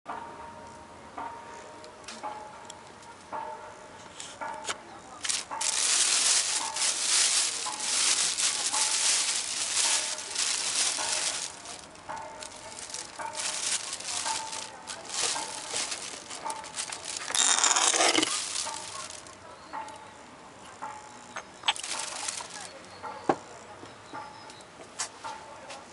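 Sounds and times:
plastic bag crinkling: 5.2 - 20.0, 21.6 - 22.8.

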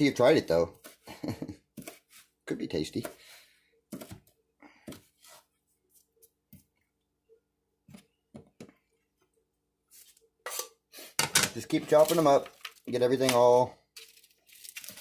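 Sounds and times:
knife chopping on plastic board: 1.7 - 2.2, 2.9 - 3.2, 3.9 - 5.4.

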